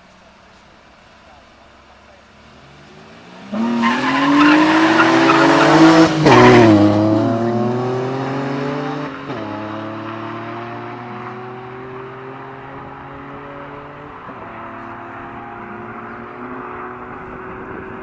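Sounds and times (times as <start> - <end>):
car engines revving hard: 1.4 - 18.0
tyre squeal: 3.6 - 6.8.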